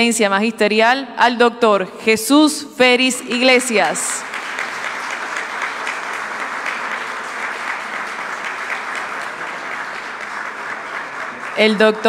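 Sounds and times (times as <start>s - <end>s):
people clapping: 3.2s - 12.0s.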